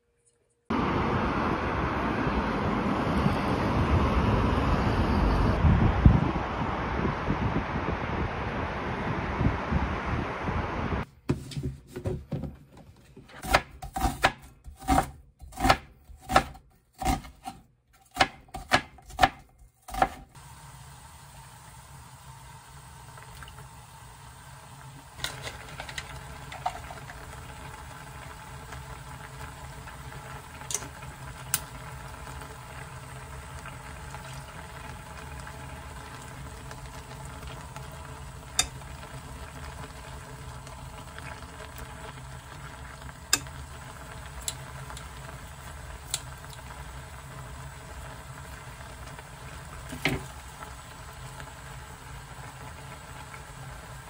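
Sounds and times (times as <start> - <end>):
broth bubbling in a pan: 20.3 - 54.0.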